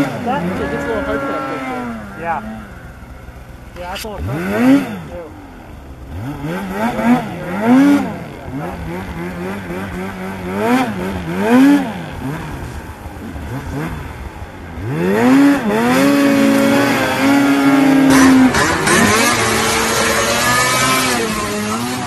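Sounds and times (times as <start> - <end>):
snowmobile engine revving: 0.0 - 22.0.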